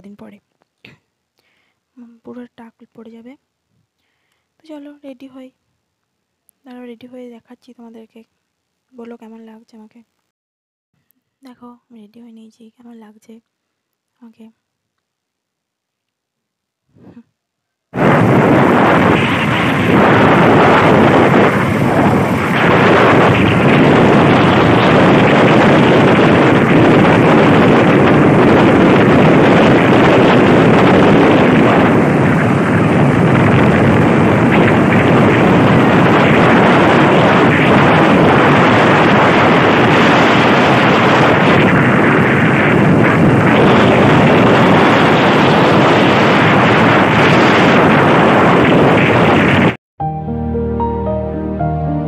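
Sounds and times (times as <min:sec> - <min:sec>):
wind rushing over microphone: 0:17.9 - 0:49.8.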